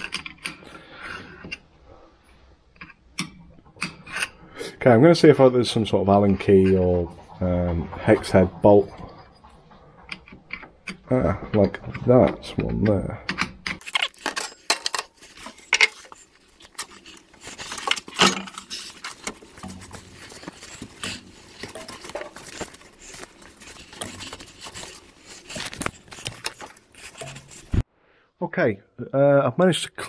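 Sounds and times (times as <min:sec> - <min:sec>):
rag wiping metal: 0:03.6 - 0:27.8.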